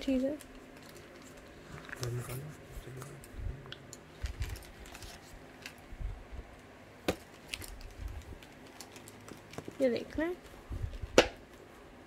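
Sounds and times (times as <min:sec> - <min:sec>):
cardboard packaging being handled: 0:04.1 - 0:05.8.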